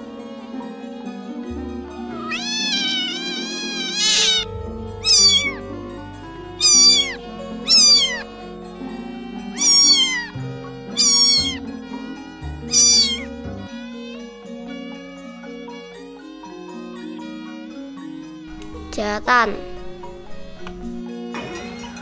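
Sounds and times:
light background music: 0:00.0 - 0:22.0
cat meowing: 0:02.0 - 0:05.6, 0:06.6 - 0:08.2, 0:09.6 - 0:11.7, 0:12.7 - 0:13.3.

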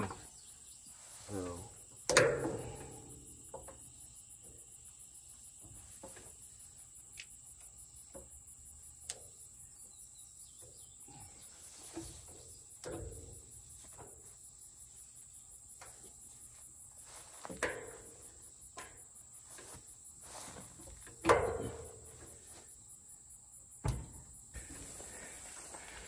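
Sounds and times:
sharp metal clanks and knocks: 0:02.0 - 0:04.5, 0:11.9 - 0:14.1, 0:17.5 - 0:19.1, 0:21.0 - 0:22.4.

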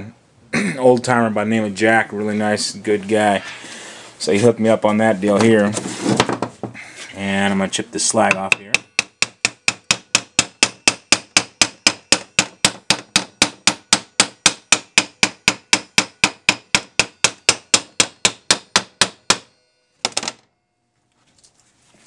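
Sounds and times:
chipping hammer striking metal: 0:08.3 - 0:20.2.

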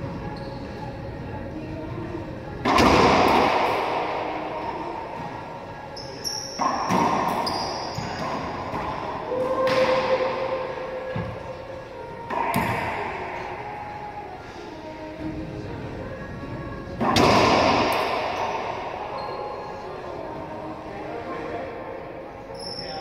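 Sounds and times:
sneakers squeaking on hardwood: 0:00.3 - 0:00.9, 0:05.9 - 0:09.9.

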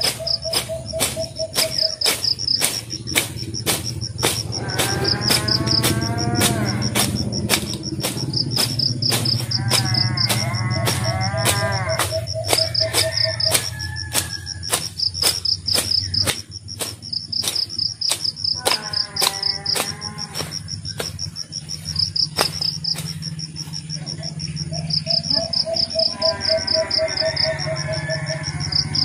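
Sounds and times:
sharp clicks: 0:00.0 - 0:23.4
insects chirping: 0:00.0 - 0:29.0.

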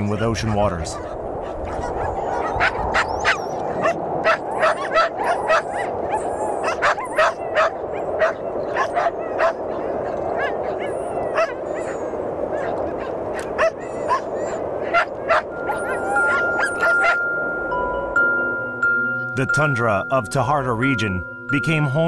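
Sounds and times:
dogs yapping and barking: 0:00.0 - 0:17.4.

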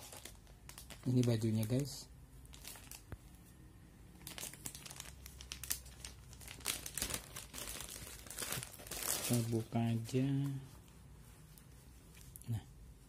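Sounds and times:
plastic bag crinkling: 0:00.0 - 0:03.1, 0:04.2 - 0:10.5.

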